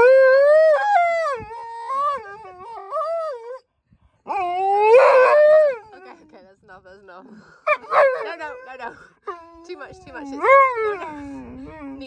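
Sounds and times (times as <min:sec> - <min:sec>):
dog howling: 0:00.0 - 0:03.6, 0:04.3 - 0:06.0.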